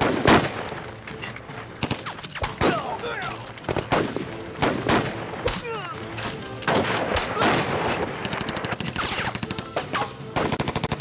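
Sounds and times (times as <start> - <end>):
single gunshots: 0.0 - 0.7, 3.7 - 5.6, 6.7 - 9.4.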